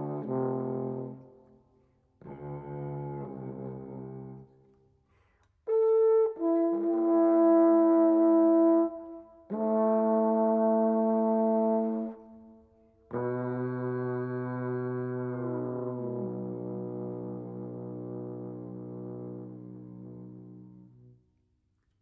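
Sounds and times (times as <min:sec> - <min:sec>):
trombone playing held notes: 0:00.0 - 0:01.3, 0:13.1 - 0:21.1.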